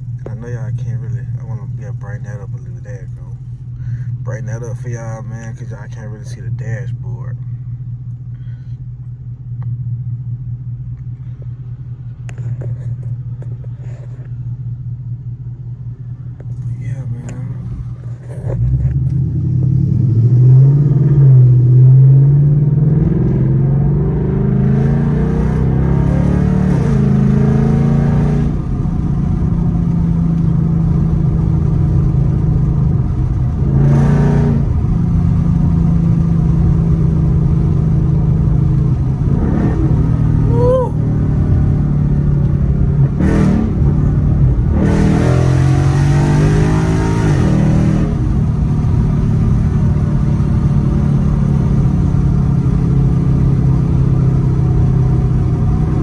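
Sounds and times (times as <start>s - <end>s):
car engine accelerating hard: 16.5s - 56.0s.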